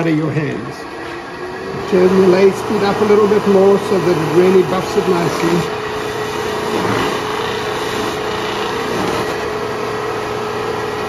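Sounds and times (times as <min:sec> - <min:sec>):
lathe motor humming: 0:00.0 - 0:11.0
buffing wheel hissing: 0:01.9 - 0:09.4.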